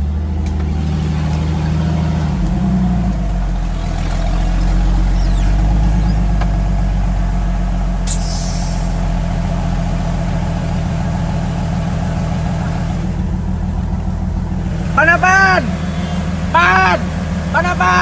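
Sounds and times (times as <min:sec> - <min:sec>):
engine running at low revs: 0:00.0 - 0:18.0
short sharp hiss: 0:08.1 - 0:09.0.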